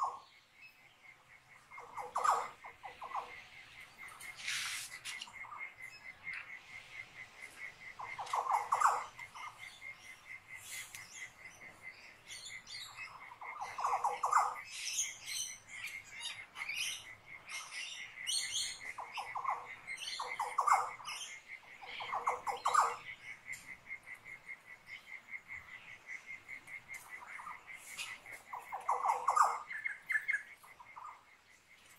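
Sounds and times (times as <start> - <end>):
cricket chirping: 0.0 - 31.9
small birds chirping: 0.0 - 31.9
low rattling bird call: 1.6 - 11.7.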